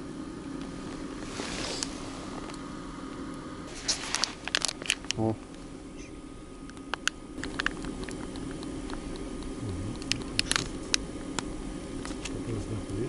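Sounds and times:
low hum: 0.0s - 13.0s
plastic packet crinkling: 3.8s - 5.2s, 7.0s - 9.0s, 10.0s - 11.0s.

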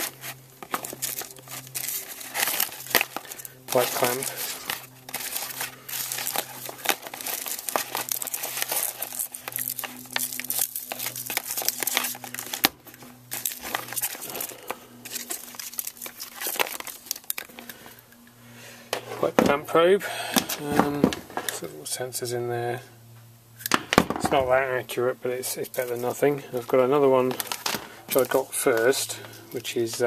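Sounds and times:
test leads shuffling: 0.0s - 18.2s
plastic bag crinkling: 0.0s - 19.6s, 25.5s - 30.0s.

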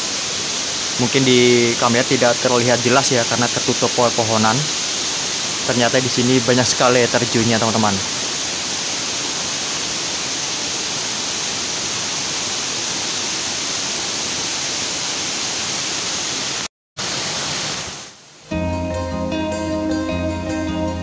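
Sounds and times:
waterfall rushing: 0.0s - 18.6s
plucked guitar music: 18.5s - 21.0s.

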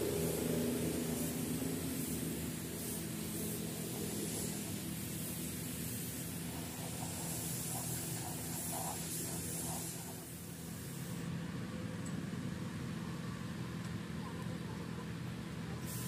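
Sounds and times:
spray gun hissing: 0.0s - 11.3s, 15.8s - 16.0s
low machine hum: 0.0s - 15.9s.

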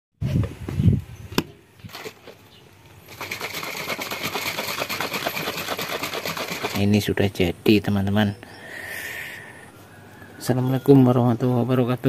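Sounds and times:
liquid rattling in shaken cup: 1.9s - 2.4s, 3.1s - 6.9s.

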